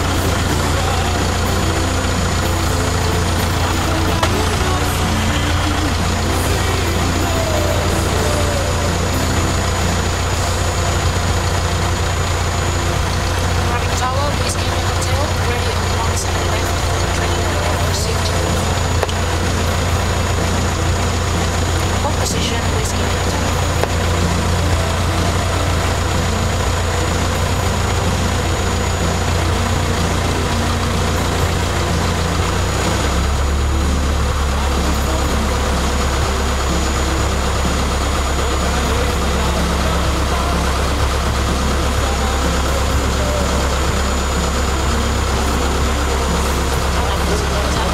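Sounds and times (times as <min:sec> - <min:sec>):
piston aircraft engine droning: 0:00.0 - 0:47.9.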